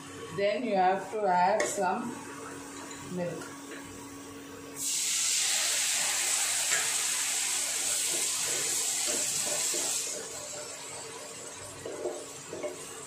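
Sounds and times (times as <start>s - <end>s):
milk sizzling in hot pan: 4.8s - 13.0s.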